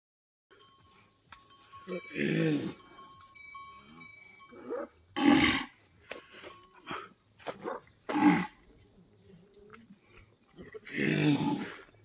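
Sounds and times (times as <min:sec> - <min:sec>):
bull calling: 0:01.9 - 0:03.0, 0:03.9 - 0:05.8, 0:06.8 - 0:08.7, 0:10.6 - 0:11.9.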